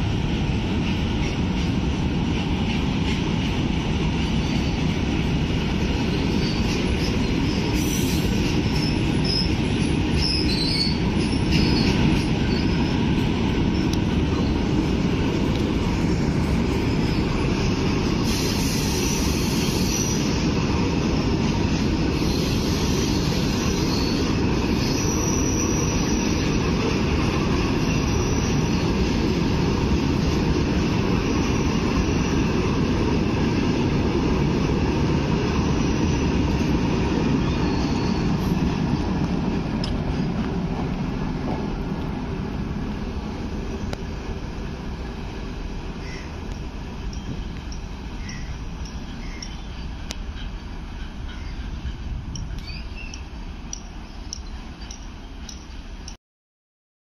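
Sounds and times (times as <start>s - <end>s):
train wheels rumbling on rail: 0.0s - 56.2s
high wheel squeals: 6.2s - 13.0s, 22.2s - 26.6s, 27.8s - 28.9s, 37.4s - 38.4s.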